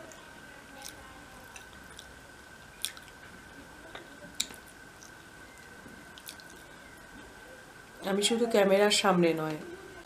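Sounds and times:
person chewing food: 0:00.8 - 0:06.9
faint steady high tone: 0:02.6 - 0:10.0.

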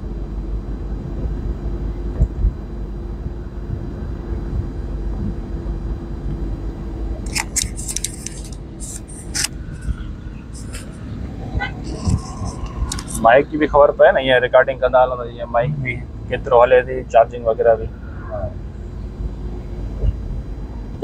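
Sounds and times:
road rumble and engine hum: 0:00.0 - 0:21.0
scratchy rasping: 0:07.3 - 0:11.0, 0:11.6 - 0:13.2.

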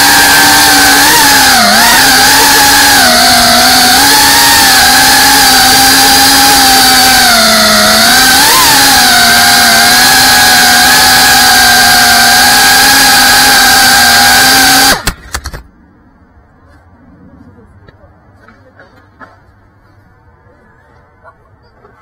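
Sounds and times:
quadcopter motors whining: 0:00.0 - 0:15.6.

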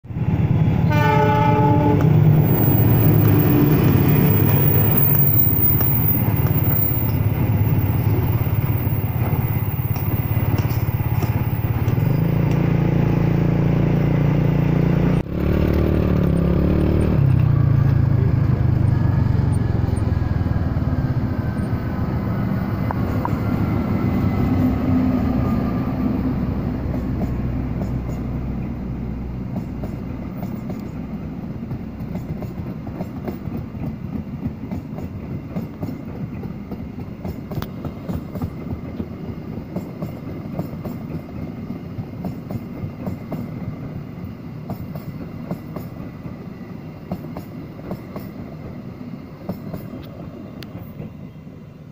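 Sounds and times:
train rumbling past: 0:00.0 - 0:51.9
train horn blast: 0:00.8 - 0:02.6.

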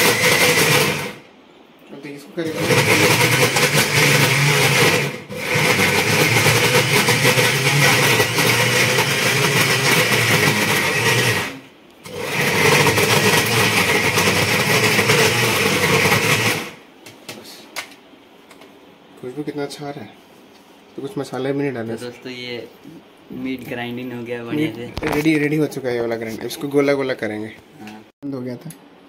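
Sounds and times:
mixer grinder grinding meat: 0:00.0 - 0:01.2, 0:02.4 - 0:16.8.

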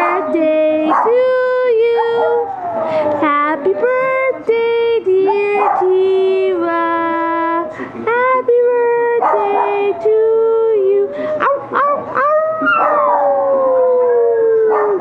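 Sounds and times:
dog howling: 0:01.8 - 0:04.4, 0:09.2 - 0:15.0.

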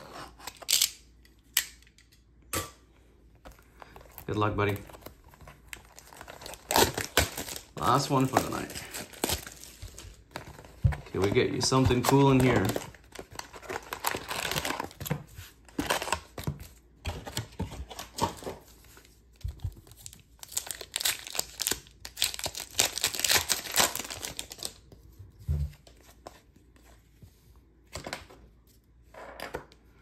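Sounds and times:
card packs rustling: 0:03.4 - 0:24.9
foil pack crinkling and tearing: 0:03.9 - 0:15.0, 0:19.8 - 0:24.8.

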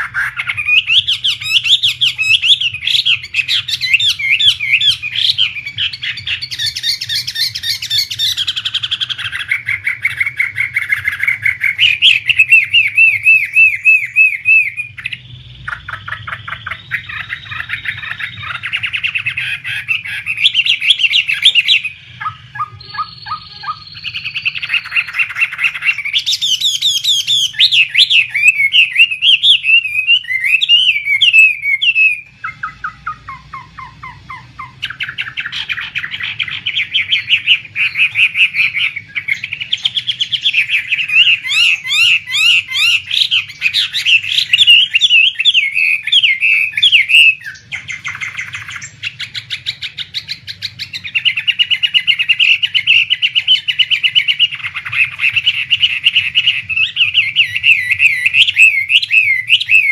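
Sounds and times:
bird singing whistles and trills: 0:00.0 - 0:59.9.

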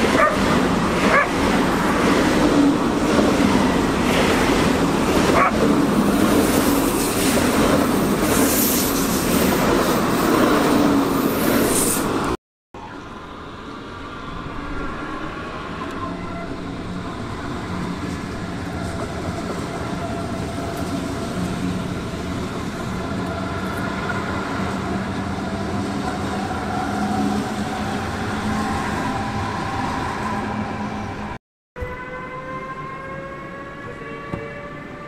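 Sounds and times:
train rumble: 0:00.0 - 0:31.4.

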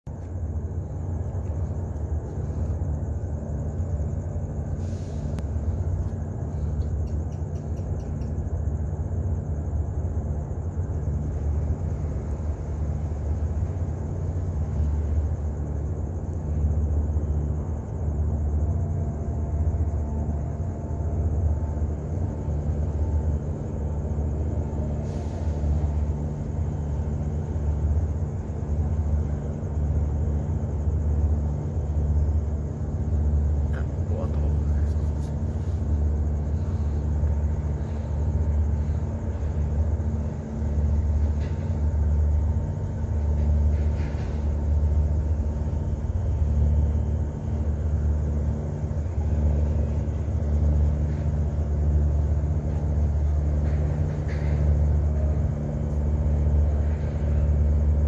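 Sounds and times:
low outdoor rumble: 0:00.0 - 0:58.0
faint clicks: 0:05.4 - 0:08.4
thin high hiss: 0:24.7 - 0:27.7.

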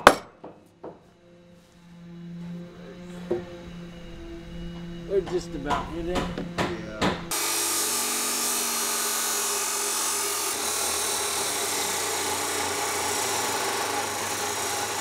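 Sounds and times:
chop saw cutting metal: 0:04.8 - 0:15.0.

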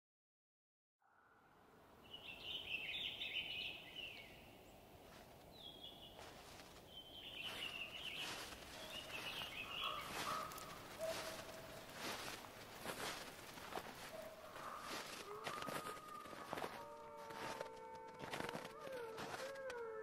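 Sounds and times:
birds chirping: 0:02.0 - 0:17.6.

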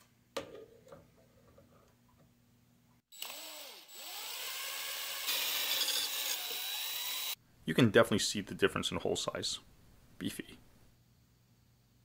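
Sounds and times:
power drill drilling metal: 0:03.2 - 0:07.4.

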